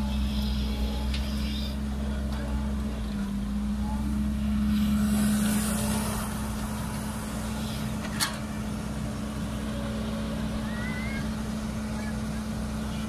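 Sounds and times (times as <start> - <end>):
excavator diesel engine droning: 0.0 - 13.0.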